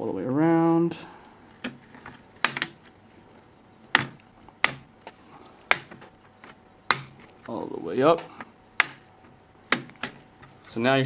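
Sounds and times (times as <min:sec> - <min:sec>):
plastic clips snapping: 0:01.5 - 0:03.0, 0:03.9 - 0:07.5, 0:08.2 - 0:09.1, 0:09.7 - 0:10.6.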